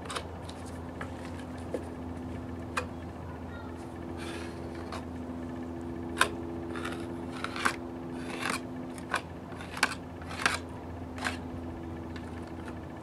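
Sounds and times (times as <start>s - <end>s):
filler scraped onto wood: 6.7s - 11.4s.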